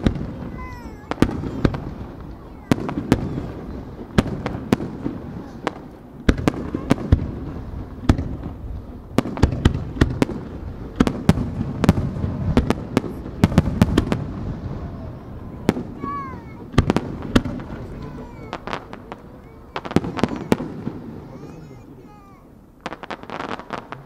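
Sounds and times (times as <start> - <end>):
low rumble of echoing reports: 0.0 - 22.9
firework shells bursting: 0.0 - 24.0.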